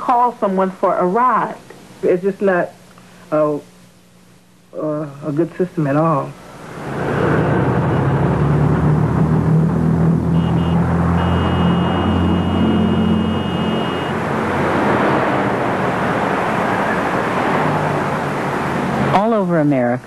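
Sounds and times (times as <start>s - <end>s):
road traffic: 5.8s - 20.0s
heavy vehicle engine running: 6.4s - 19.1s
high-pitched squeal: 10.2s - 14.3s.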